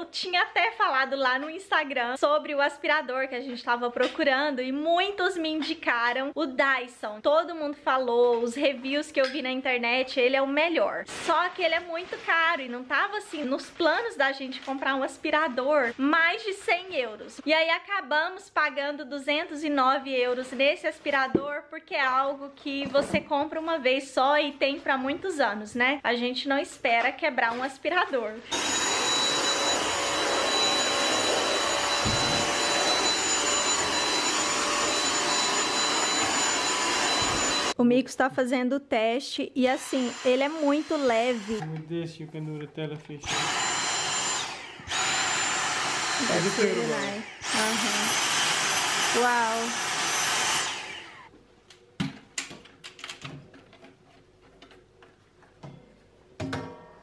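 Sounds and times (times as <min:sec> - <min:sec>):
cordless vacuum running: 0:28.5 - 0:37.8, 0:39.8 - 0:41.8, 0:43.2 - 0:51.3.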